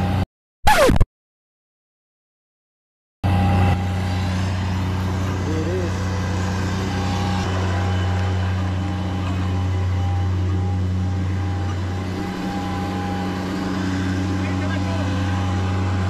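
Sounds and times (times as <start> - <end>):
machine engine droning: 3.2 - 16.0.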